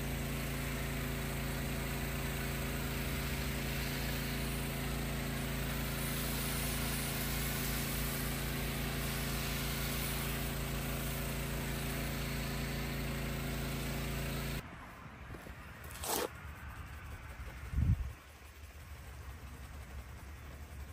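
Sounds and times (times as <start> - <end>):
hiss of spray: 0.0 - 14.6
pressure washer motor humming: 0.0 - 14.6, 16.0 - 20.9.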